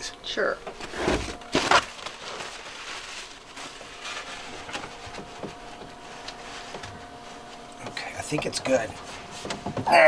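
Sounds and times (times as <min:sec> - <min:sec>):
hands knocking and rustling: 0:04.7 - 0:08.5.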